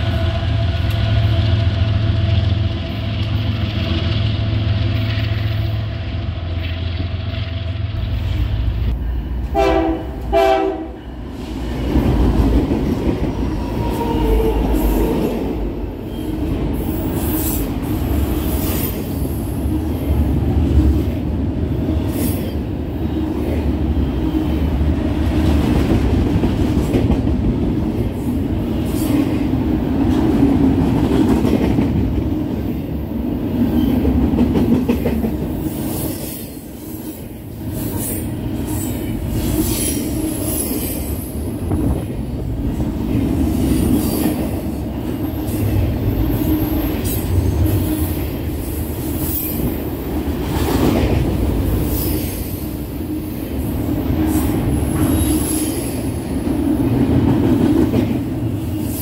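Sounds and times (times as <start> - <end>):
diesel locomotive drone: 0.0 - 59.0
train wheels rumbling on rails: 0.0 - 59.0
train horn blasts: 9.4 - 11.2.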